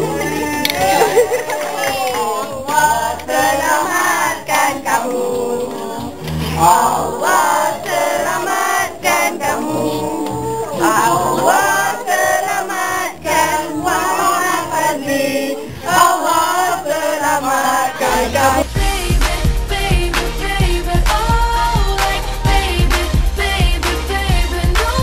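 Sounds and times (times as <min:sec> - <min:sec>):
group singing: 0:00.0 - 0:25.0
music track with bass beat: 0:18.1 - 0:25.0.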